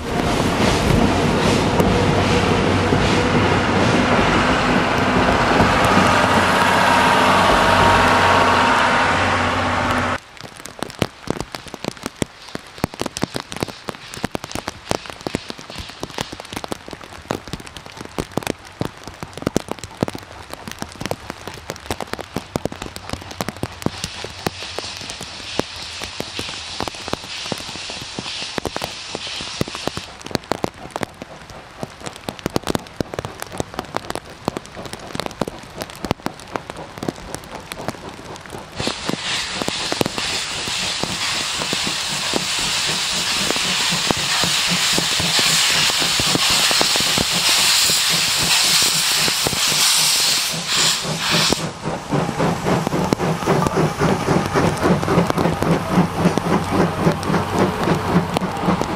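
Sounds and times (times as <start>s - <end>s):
train coaches rolling over steel bridge: 0.0s - 11.0s, 20.6s - 58.9s
heavy rain with sharp drop hits: 0.0s - 58.9s
higher hiss: 23.9s - 30.1s, 38.8s - 54.8s.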